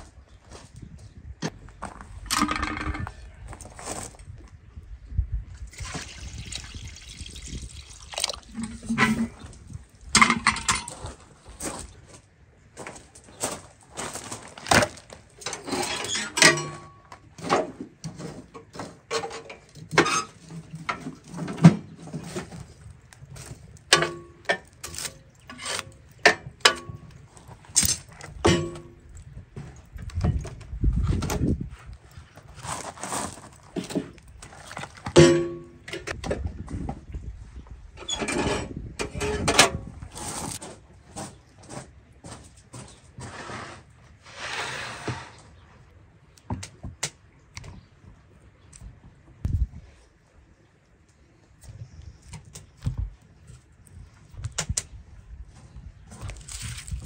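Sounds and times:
liquid poured into a steel pot: 5.7 - 8.9
knocks and metal clanks: 8.6 - 11.2, 14.6 - 22.7, 23.8 - 31.6, 33.7 - 36.8.

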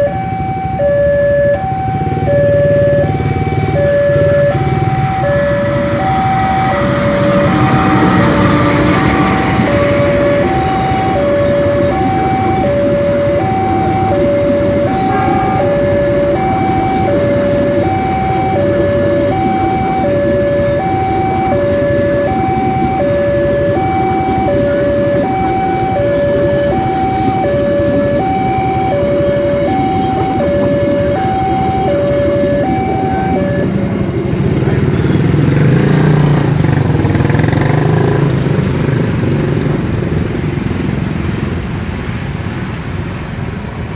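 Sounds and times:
level-crossing alarm two tones: 0.0 - 34.2
passenger train passing on rails: 0.0 - 43.9.

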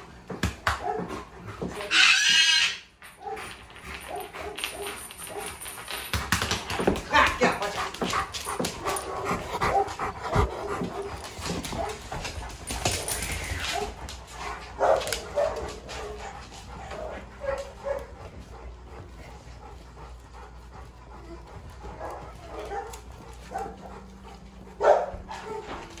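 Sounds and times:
puppy yelps: 1.8 - 2.9
puppies yipping and whimpering: 1.8 - 3.0.

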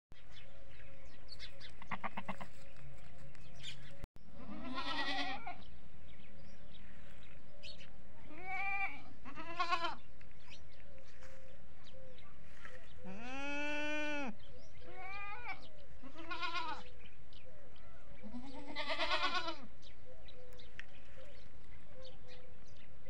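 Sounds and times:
goats bleating: 4.4 - 5.6, 8.3 - 10.1, 13.0 - 16.9, 18.2 - 19.7.

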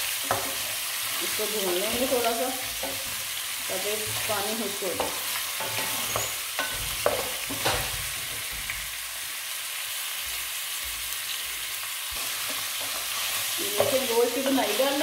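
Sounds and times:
meat sizzling in hot oil: 0.0 - 15.0
wooden spatula scraping pot: 1.7 - 7.9.

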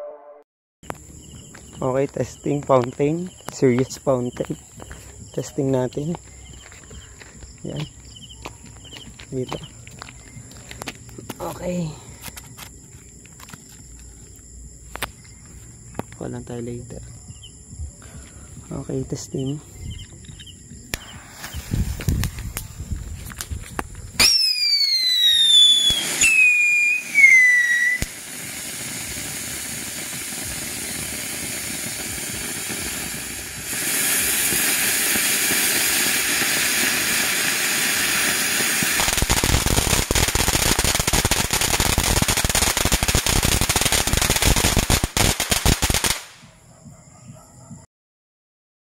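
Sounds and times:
firework spark fountain hissing: 20.9 - 23.4, 24.2 - 46.3
firework crackling: 20.9 - 46.5
firework whistles falling in pitch: 24.1 - 46.2.

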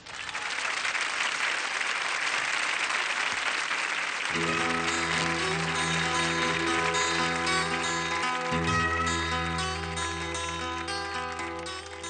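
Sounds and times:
audience applauding: 0.0 - 12.0
instrumental music with held chords: 4.3 - 12.0.

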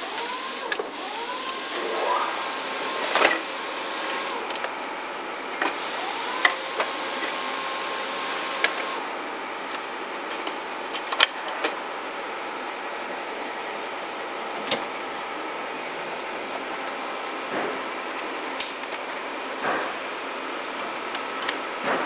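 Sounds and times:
small electric motor whining: 0.0 - 4.5.

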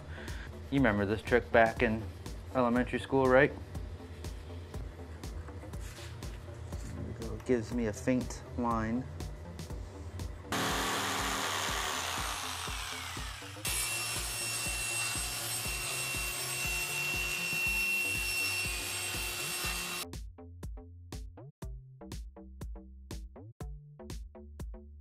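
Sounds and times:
rough sawing noise: 10.5 - 20.0
table saw cutting plywood: 10.5 - 20.0
music with steady beat: 20.0 - 25.0.

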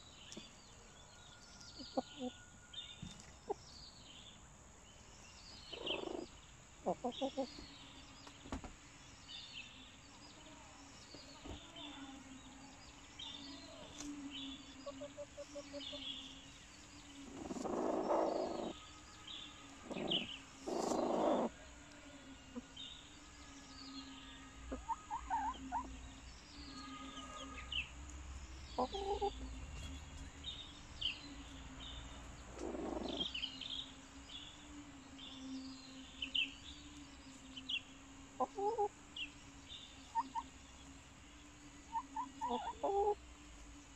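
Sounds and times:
steady low hum: 0.0 - 43.9
hens clucking softly: 17.3 - 18.7, 19.9 - 21.5, 28.8 - 29.4, 32.5 - 33.3, 41.9 - 43.2.

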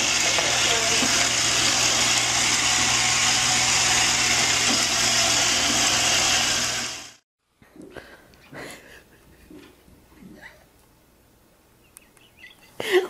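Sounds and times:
robot vacuum whirring: 0.0 - 7.2.

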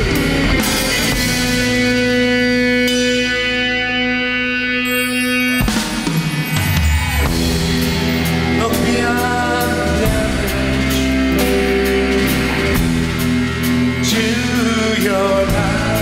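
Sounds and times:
drum kit with cymbals: 0.0 - 3.6, 5.1 - 16.0
bass guitar: 0.0 - 16.0
electric guitar: 0.0 - 16.0
man singing: 8.2 - 12.6, 13.9 - 16.0.

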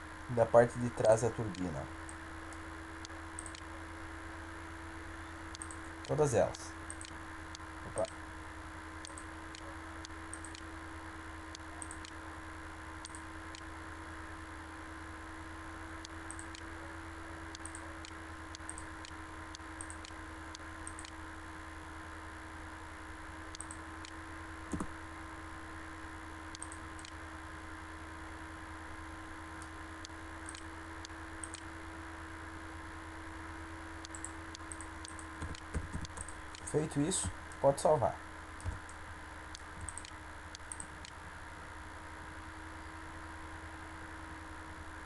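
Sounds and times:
electrical hum and hiss: 0.0 - 45.0
computer mouse clicking: 1.1 - 3.7, 5.5 - 8.2, 9.0 - 10.7, 11.5 - 12.2, 13.0 - 13.7, 17.5 - 20.2, 20.8 - 21.2, 23.5 - 24.9, 26.5 - 27.2, 30.4 - 30.7, 31.4 - 31.7, 34.0 - 37.3, 38.6 - 41.2.

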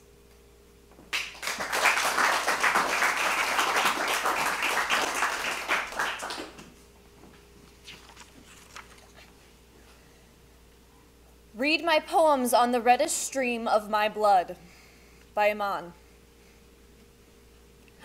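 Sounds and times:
audience applauding: 1.1 - 6.7.

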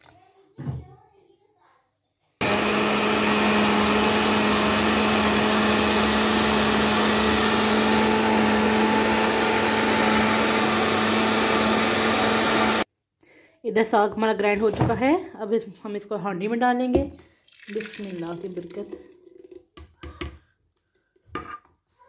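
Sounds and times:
electric blender motor whirring: 2.4 - 12.9.

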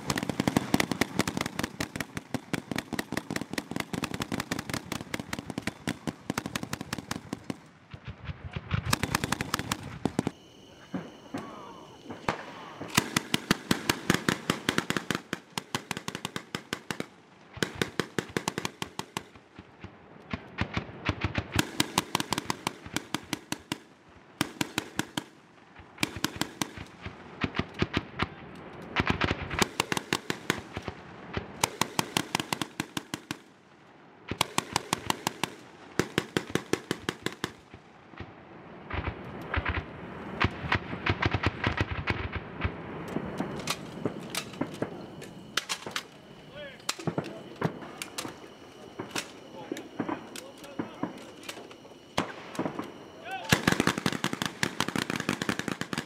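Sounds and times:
automatic gunfire bursts: 0.0 - 7.6, 8.8 - 10.3, 12.0 - 19.4, 20.7 - 25.4, 26.0 - 28.0, 29.0 - 30.9, 31.6 - 33.4, 34.3 - 37.8, 52.2 - 56.0.

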